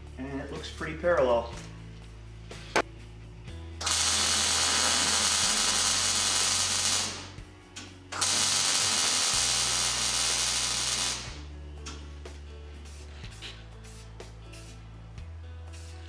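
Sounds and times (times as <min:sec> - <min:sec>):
welding arc crackling: 0:03.8 - 0:07.4, 0:08.1 - 0:11.4.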